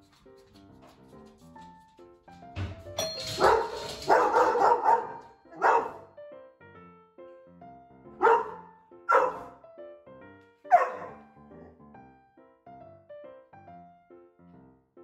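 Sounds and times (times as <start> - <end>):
dog barking: 3.3 - 6.1, 8.2 - 9.6, 10.7 - 11.3.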